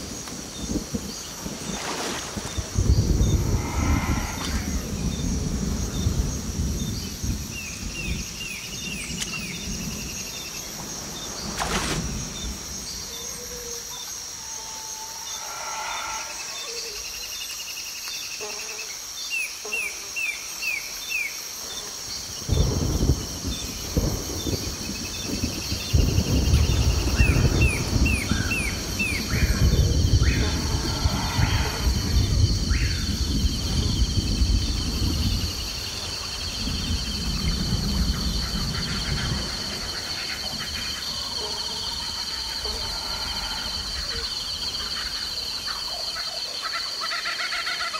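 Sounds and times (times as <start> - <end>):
high insect drone: 0.0 - 47.9
low rushing noise: 2.6 - 7.5, 15.0 - 17.5, 26.6 - 34.0.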